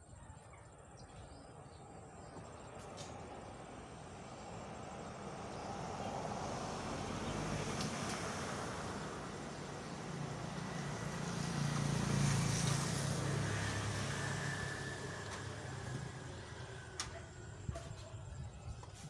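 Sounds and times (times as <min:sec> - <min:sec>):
vehicle engine passing by: 0:02.2 - 0:18.5.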